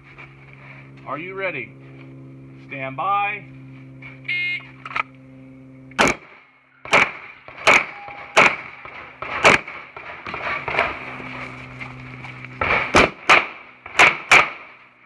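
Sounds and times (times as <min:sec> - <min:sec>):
pistol shots: 0:06.0 - 0:10.8, 0:12.6 - 0:14.8.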